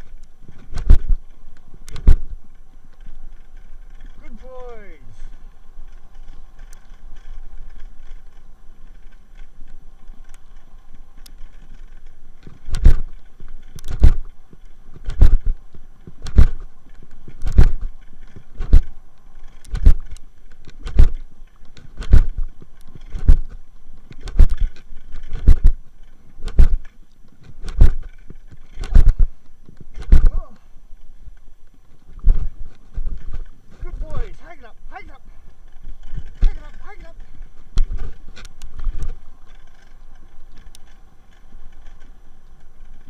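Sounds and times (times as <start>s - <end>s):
wheeled rig rolling on dirt: 0.0s - 43.0s
heavy regular thump: 0.6s - 1.2s, 1.9s - 2.4s, 13.8s - 14.3s, 15.0s - 16.7s, 17.3s - 18.9s, 19.7s - 20.2s, 20.8s - 21.3s, 21.9s - 23.6s, 24.2s - 25.8s, 26.4s - 30.4s.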